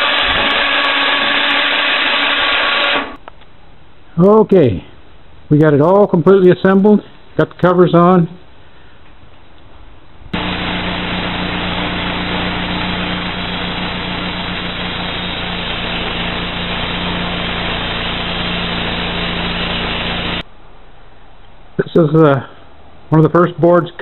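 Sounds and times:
band sawmill engine running: 0.0 - 3.2, 10.4 - 20.4.

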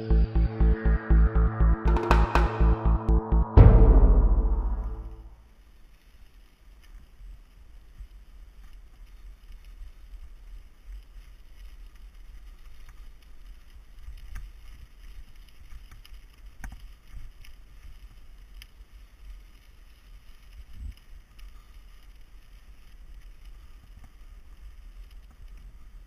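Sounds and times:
bike tyres rumbling on gravel: 6.0 - 26.0.

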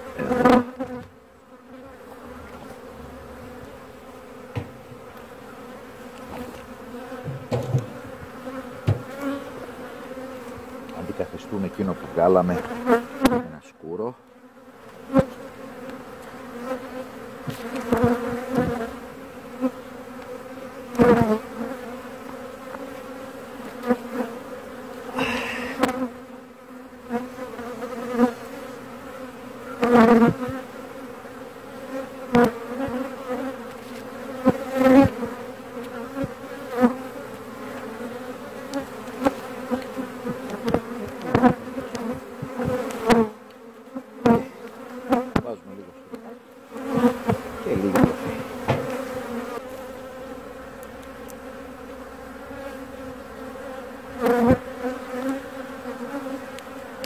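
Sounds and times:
honeybees buzzing: 0.0 - 57.0
wooden hive frames knocking: 4.4 - 5.2, 6.2 - 9.5, 39.1 - 43.2, 46.8 - 49.5.

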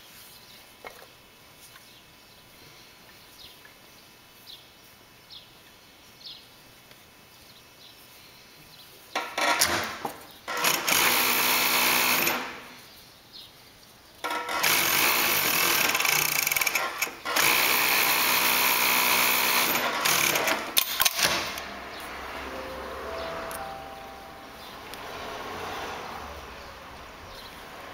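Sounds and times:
industrial sewing machine running: 14.3 - 20.6.

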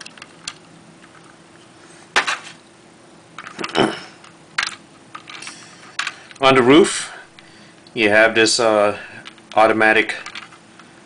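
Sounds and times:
plastic toy bricks clicking: 4.6 - 6.2, 10.2 - 10.6.

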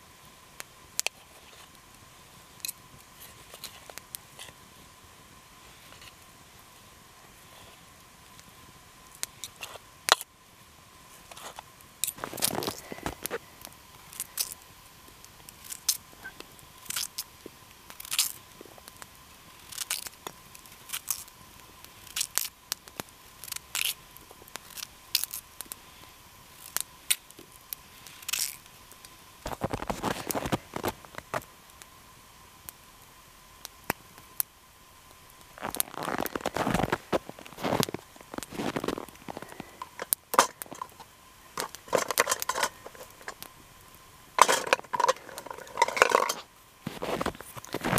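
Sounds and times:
campfire crackling and popping: 0.0 - 47.9
scraping and crunching: 11.2 - 13.4, 29.4 - 31.4, 35.6 - 43.5, 44.4 - 47.9.

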